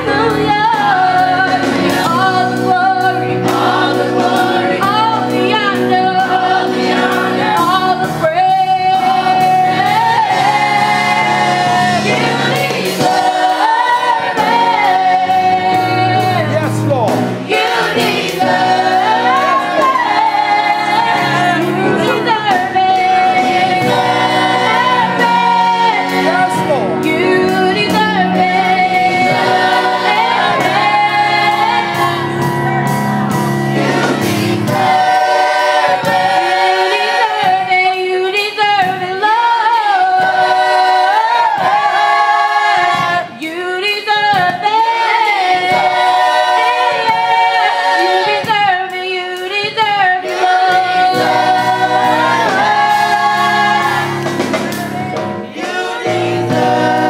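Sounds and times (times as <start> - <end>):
low instrumental accompaniment: 0.0 - 43.5
gospel choir singing: 0.0 - 57.0.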